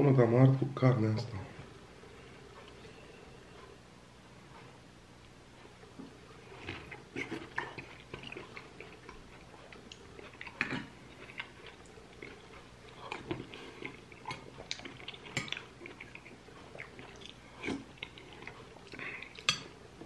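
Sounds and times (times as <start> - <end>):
close-up chewing: 5.2 - 20.0.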